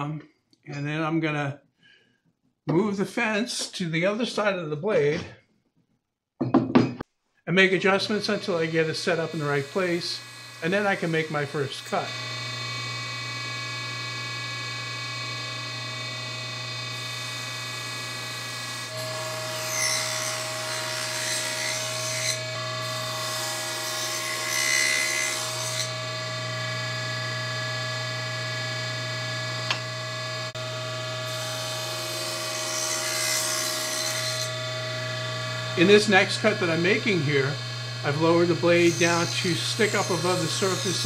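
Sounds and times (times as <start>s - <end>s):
saw blade cutting wood: 8.1s - 14.0s, 15.7s - 41.0s
table saw motor hum: 8.1s - 41.0s.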